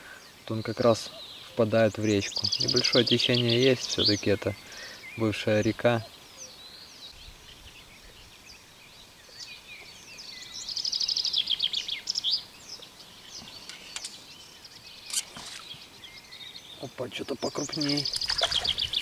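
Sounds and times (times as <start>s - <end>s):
songbirds singing: 0.0s - 19.0s
sharp water splash: 17.8s - 19.0s.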